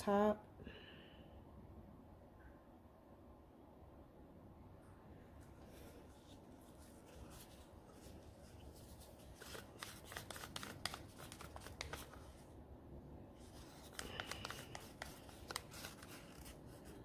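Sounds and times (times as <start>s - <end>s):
plastic gloves crinkling: 5.7s - 12.5s, 13.4s - 17.0s.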